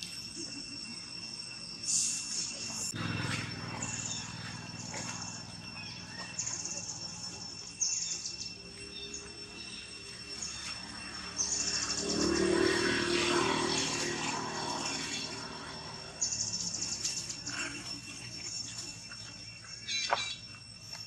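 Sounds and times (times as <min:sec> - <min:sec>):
high chirping trills: 0:00.2 - 0:21.0
monkeys calling agitatedly: 0:13.6 - 0:20.4.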